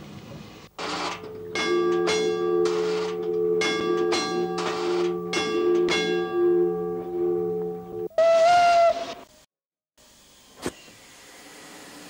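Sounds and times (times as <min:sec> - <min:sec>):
railway signal bell ringing: 0:00.9 - 0:08.1
steam locomotive whistle: 0:01.0 - 0:09.2.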